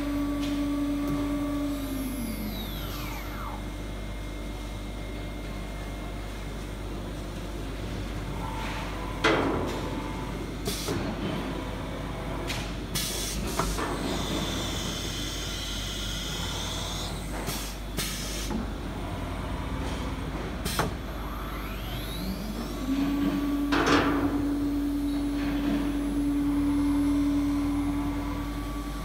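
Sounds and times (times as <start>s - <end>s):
machine whine: 0.0s - 6.2s, 13.6s - 29.0s
steady machine hum: 0.0s - 29.0s
spindle spinning up whine: 21.2s - 29.0s.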